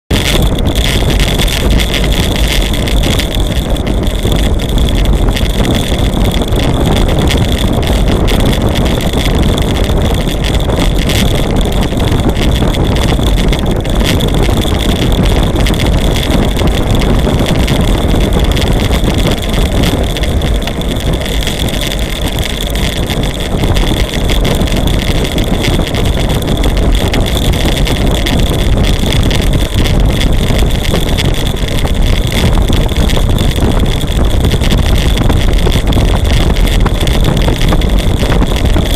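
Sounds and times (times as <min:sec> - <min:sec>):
low road rumble: 0:00.0 - 0:38.9
constant high whine: 0:00.1 - 0:38.9
wind rushing over microphone: 0:00.1 - 0:38.9.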